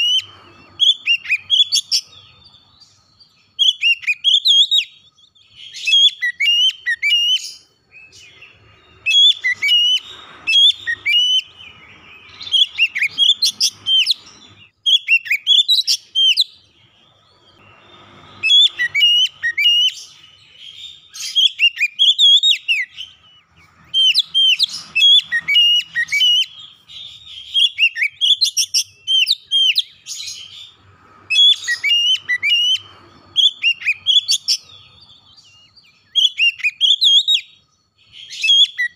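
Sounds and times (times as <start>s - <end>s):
bird singing whistled phrases: 0.0s - 38.9s.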